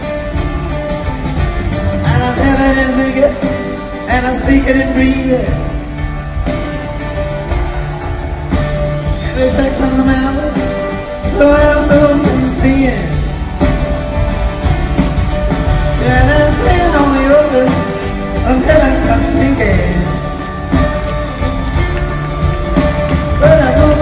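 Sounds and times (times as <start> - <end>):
drums: 0.0 - 24.0
upright bass: 0.0 - 24.0
man singing: 2.0 - 5.8, 9.2 - 13.2, 16.0 - 20.2, 23.3 - 24.0.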